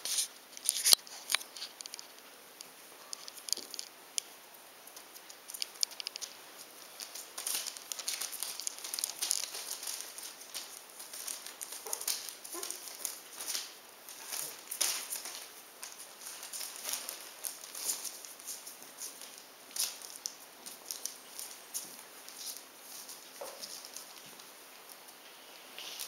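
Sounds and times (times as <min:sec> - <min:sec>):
newspaper crinkling under paws: 0:04.9 - 0:25.2.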